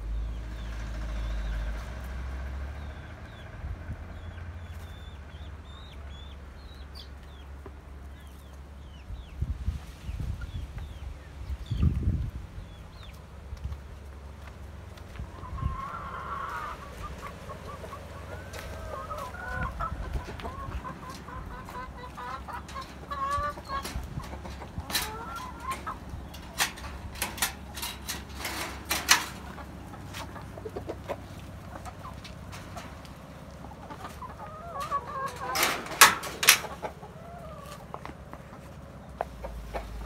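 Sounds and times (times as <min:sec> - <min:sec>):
hens clucking: 0:12.6 - 0:40.0.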